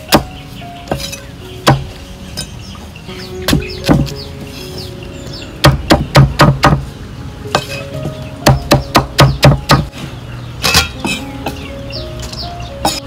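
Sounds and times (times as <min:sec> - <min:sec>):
cleaver chopping on wooden block: 0:00.9 - 0:02.5, 0:05.6 - 0:06.8, 0:08.4 - 0:09.9.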